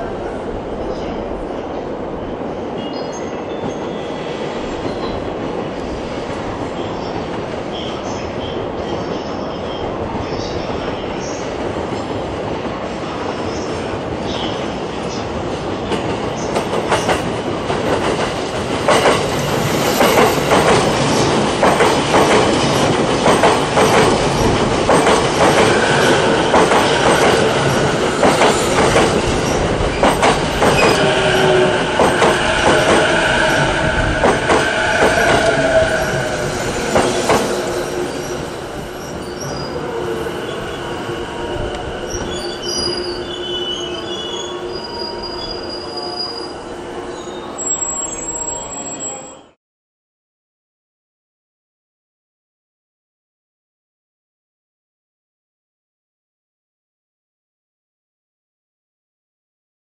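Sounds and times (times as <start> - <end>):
train wheels clacking over rail joints: 15.9 - 38.1
train brakes squealing: 30.0 - 49.6.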